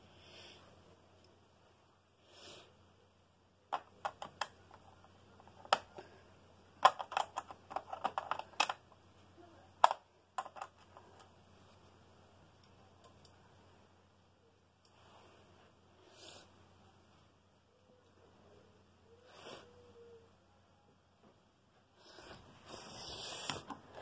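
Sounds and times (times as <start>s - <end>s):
plastic and metal parts clicking: 6.8s - 8.8s.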